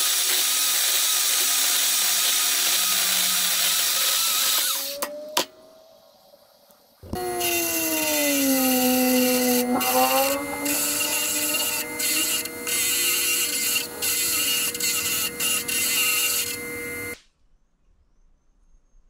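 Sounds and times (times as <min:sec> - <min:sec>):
bench grinder motor hum: 0:00.0 - 0:05.0, 0:07.0 - 0:17.2
grinding wheel on metal: 0:00.0 - 0:05.0, 0:07.0 - 0:17.2.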